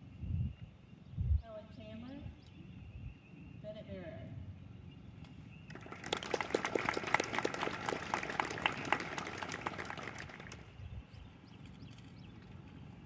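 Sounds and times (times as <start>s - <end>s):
audience applauding: 5.7s - 10.7s.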